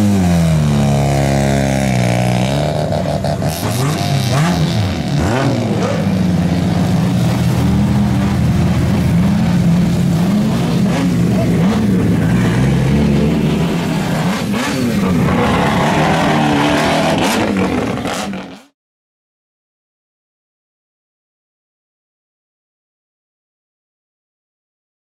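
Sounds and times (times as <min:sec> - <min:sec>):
exhaust rumble: 0:00.0 - 0:18.6
car engine revving: 0:00.0 - 0:18.7.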